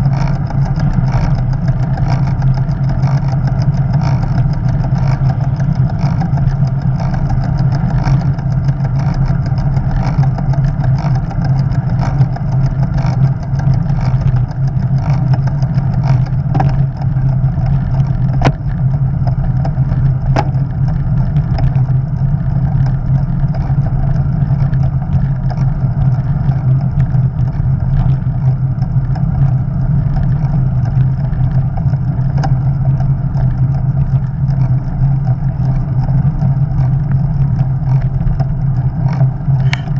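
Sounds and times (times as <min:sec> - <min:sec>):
bicycle tyre noise: 0:00.0 - 0:39.9
light ticks: 0:00.0 - 0:39.9.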